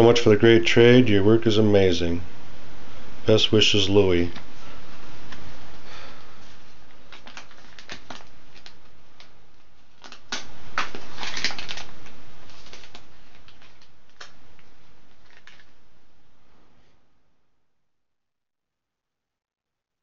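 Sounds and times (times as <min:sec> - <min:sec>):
paper rustling and crinkling: 0:06.4 - 0:15.8.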